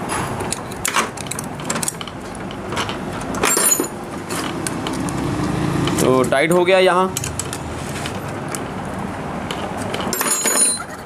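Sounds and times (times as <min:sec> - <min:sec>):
spanner clicking and tapping metal: 0:00.4 - 0:05.2.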